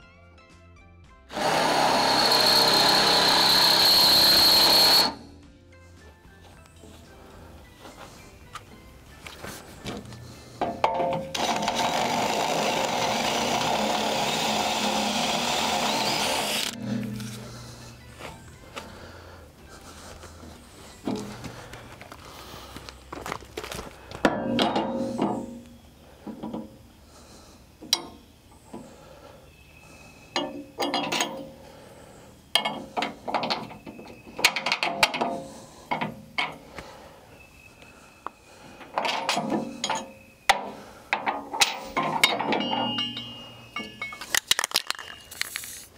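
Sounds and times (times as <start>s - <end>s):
cordless drill drilling metal: 1.3s - 5.2s, 11.2s - 17.8s
metal knocks clinks and scrapes: 9.8s - 11.4s, 24.2s - 25.6s, 30.4s - 31.6s, 38.8s - 45.9s.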